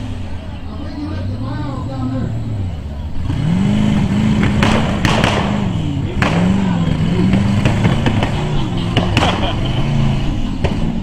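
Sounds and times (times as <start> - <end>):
buggy engine revving: 0.0 - 11.0
sharp cracks: 4.4 - 9.6.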